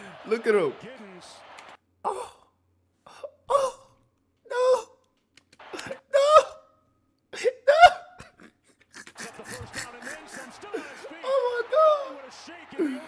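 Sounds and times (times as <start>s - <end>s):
man yelping excitedly: 9.2s - 13.0s.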